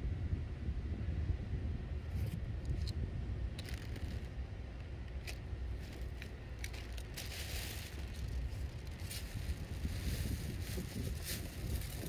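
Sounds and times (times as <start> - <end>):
wind buffeting microphone: 0.0 - 12.0
faint clicks and crackles: 3.6 - 12.0.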